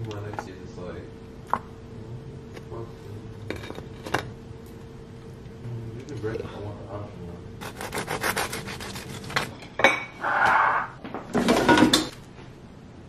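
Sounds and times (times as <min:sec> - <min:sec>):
rasping rubbing strokes: 0:07.6 - 0:09.4
dishes clattering: 0:09.4 - 0:10.2, 0:11.3 - 0:12.1.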